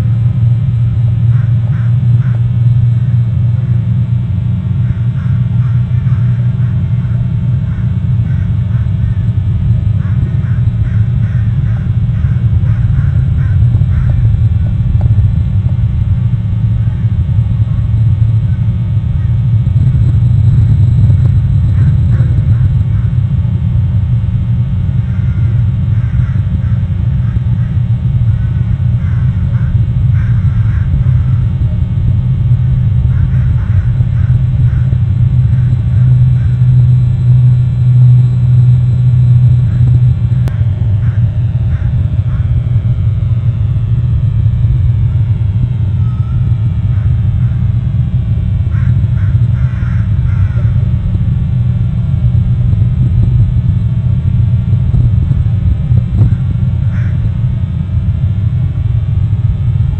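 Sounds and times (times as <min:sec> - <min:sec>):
loud low rumble: 0:00.0 - 0:59.9
faint bird calls: 0:01.2 - 0:02.6, 0:04.7 - 0:15.2, 0:16.3 - 0:23.7, 0:24.8 - 0:51.2, 0:56.1 - 0:57.3
faint crow caws: 0:01.2 - 0:03.3, 0:04.6 - 0:52.1, 0:54.5 - 0:58.7
wind buffeting microphone: 0:05.2 - 0:59.9.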